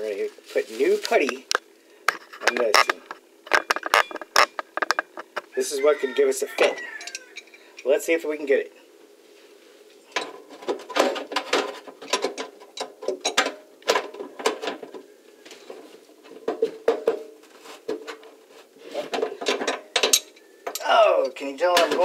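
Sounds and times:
wrench clinking on metal: 0:06.8 - 0:07.6, 0:19.6 - 0:20.9.

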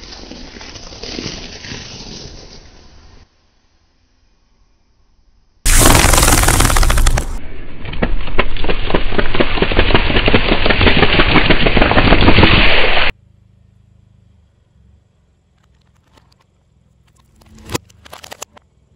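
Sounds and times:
car tyre bursting cartons: 0:05.7 - 0:13.1
crackling crushing noise: 0:05.7 - 0:13.1, 0:17.1 - 0:18.6.

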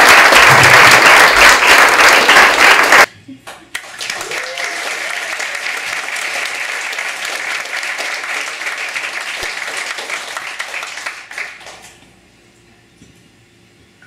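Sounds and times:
audience applauding: 0:00.0 - 0:03.1, 0:03.7 - 0:11.9.

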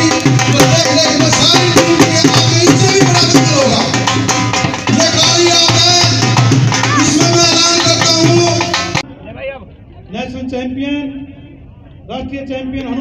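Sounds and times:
music with steady drum beat: 0:00.0 - 0:09.1.

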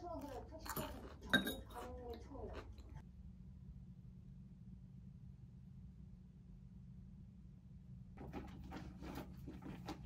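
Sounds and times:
faint low hum: 0:00.0 - 0:10.0.

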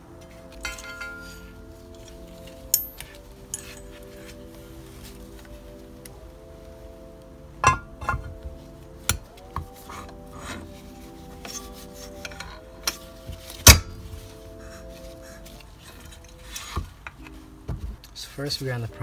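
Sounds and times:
background music with held notes: 0:00.0 - 0:19.0
metal clinks and knocks: 0:00.6 - 0:01.6, 0:02.7 - 0:04.2.

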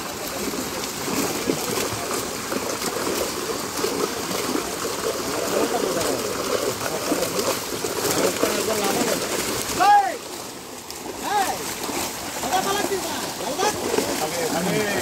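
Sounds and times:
fish thrashing and splashing water: 0:00.0 - 0:15.0
people's voices: 0:12.4 - 0:15.0.

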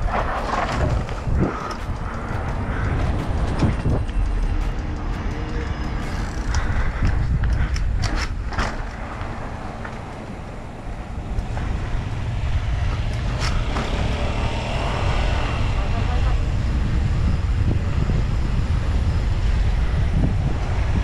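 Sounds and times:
sharp clicks and rattles: 0:00.0 - 0:15.2
wind rumble on microphone: 0:00.0 - 0:21.0.

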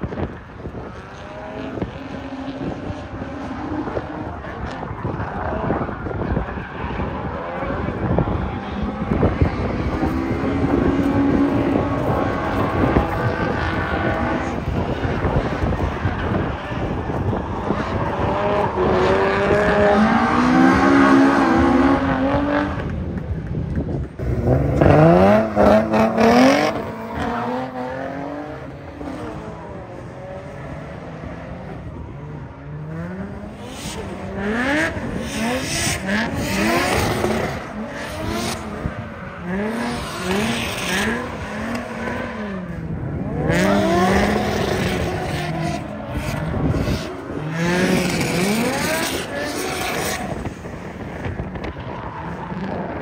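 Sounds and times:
car engines revving: 0:00.0 - 0:53.0.

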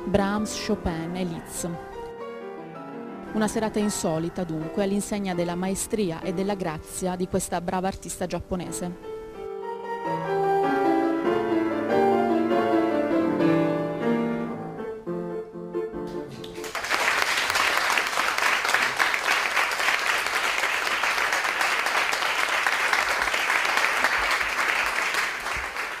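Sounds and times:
solo piano: 0:08.6 - 0:16.6
audience applause: 0:16.4 - 0:26.0.

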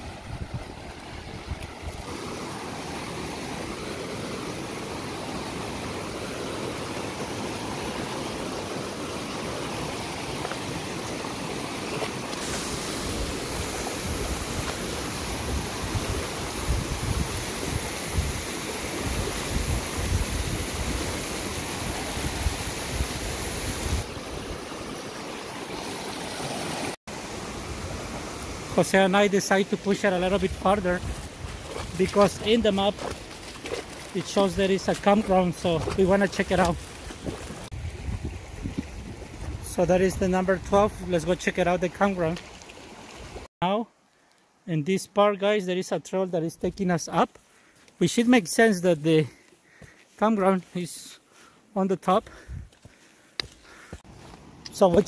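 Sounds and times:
wind buffeting microphone: 0:00.0 - 0:02.0, 0:13.2 - 0:21.2, 0:37.2 - 0:41.1
waterfalls splashing: 0:00.0 - 0:37.8.

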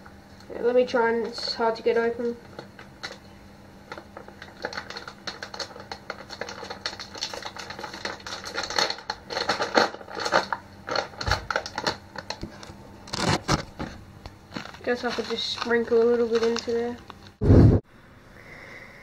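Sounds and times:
fingers crackling plastic package: 0:02.2 - 0:03.3, 0:03.9 - 0:17.4.

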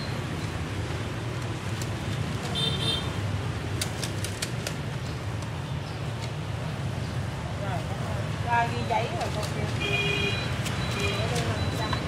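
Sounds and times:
street traffic rumble: 0:00.0 - 0:12.0
sharp clicks: 0:03.7 - 0:05.6.

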